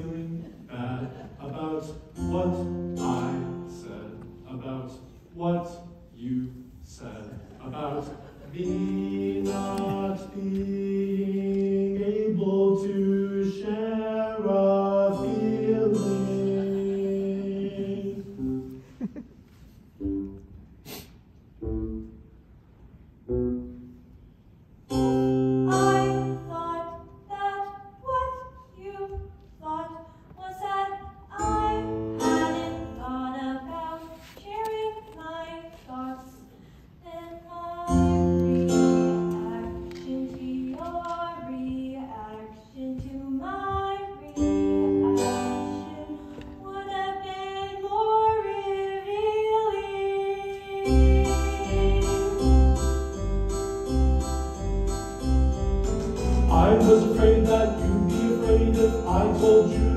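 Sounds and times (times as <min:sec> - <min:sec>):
person singing: 0:07.8 - 0:18.4, 0:37.2 - 0:52.8, 0:56.4 - 0:59.9
instrumental accompaniment notes: 0:20.0 - 0:20.8, 0:21.5 - 0:24.2, 0:50.0 - 0:59.9.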